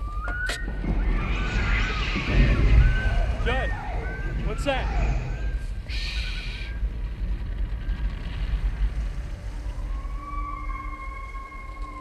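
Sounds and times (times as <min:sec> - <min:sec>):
low rumble: 0:00.0 - 0:12.0
eerie wailing cry: 0:00.6 - 0:06.8, 0:09.5 - 0:12.0.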